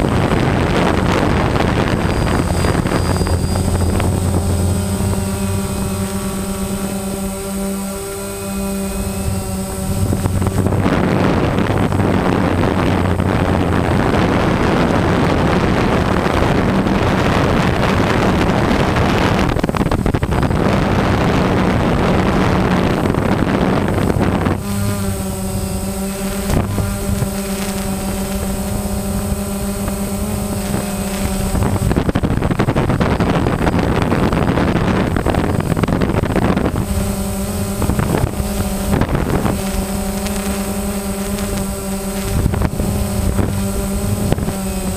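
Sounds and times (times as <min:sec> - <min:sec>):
drone propellers humming: 0:00.0 - 0:44.9
wind buffeting microphone: 0:00.0 - 0:44.9.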